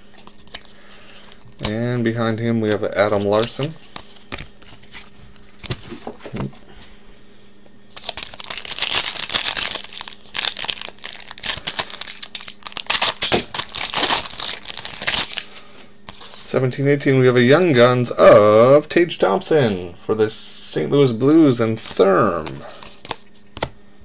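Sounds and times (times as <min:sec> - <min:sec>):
wrapper tearing and crinkling: 0:07.9 - 0:15.5.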